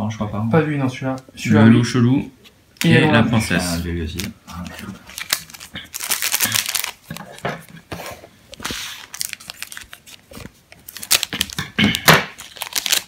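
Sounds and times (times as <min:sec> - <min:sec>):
foil wrapper crinkling: 0:04.1 - 0:07.4, 0:08.6 - 0:13.0
foil pack tearing open: 0:04.5 - 0:07.4, 0:08.6 - 0:13.0.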